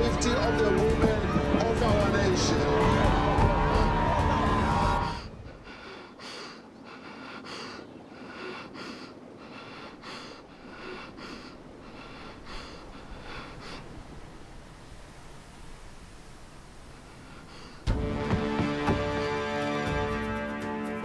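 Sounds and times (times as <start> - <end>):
person panting hard: 3.4 - 14.0, 17.2 - 19.6.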